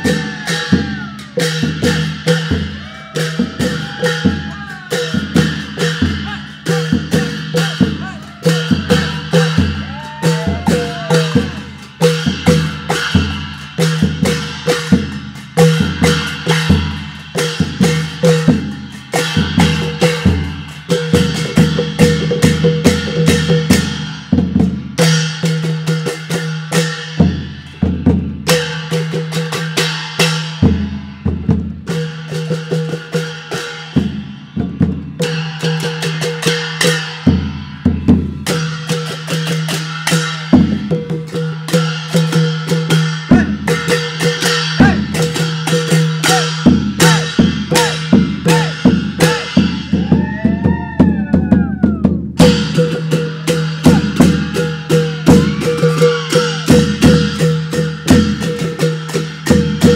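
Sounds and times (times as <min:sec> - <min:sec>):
hand drums fast rhythm: 0:00.0 - 0:59.9.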